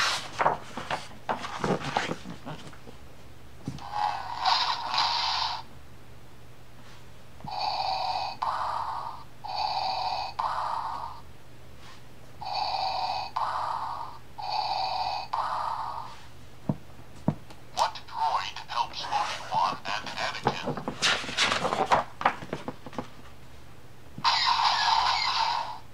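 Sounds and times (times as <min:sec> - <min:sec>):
board book page turning: 0:00.0 - 0:02.8, 0:19.0 - 0:23.2
rasping respirator breathing from speaker: 0:03.8 - 0:05.7, 0:06.9 - 0:16.4.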